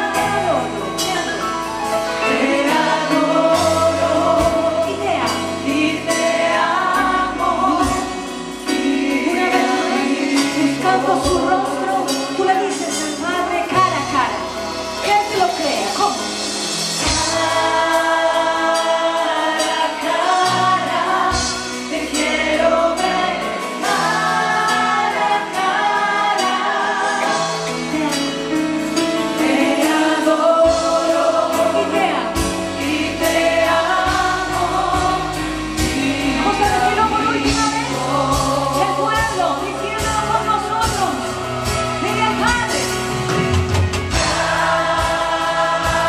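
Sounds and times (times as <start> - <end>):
group singing into microphones: 0.0 - 13.5, 16.4 - 40.8, 43.6 - 46.0
band with drums and keyboard: 0.0 - 46.0.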